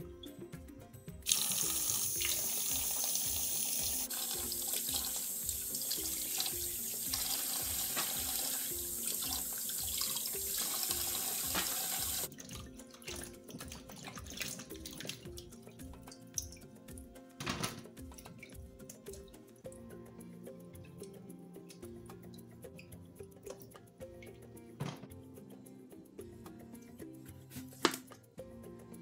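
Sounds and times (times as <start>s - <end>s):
tap water splashing into tub: 4.3s - 15.5s.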